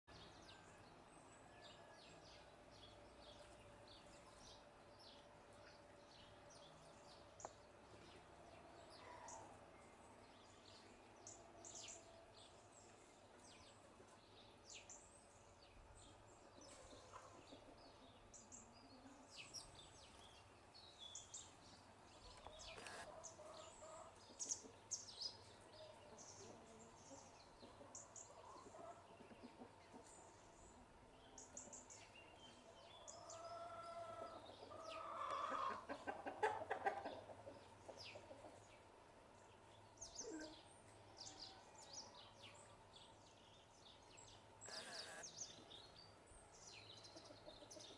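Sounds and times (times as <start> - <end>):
house sparrows chirping: 16.6 - 30.4, 39.5 - 46.1
lower repeated bird call: 22.6 - 23.2, 44.6 - 45.3.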